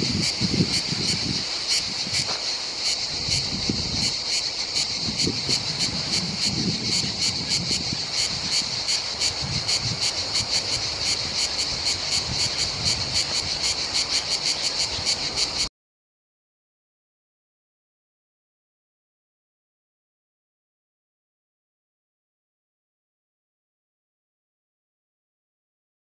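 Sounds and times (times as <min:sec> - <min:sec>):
cicada singing: 0:00.0 - 0:15.7.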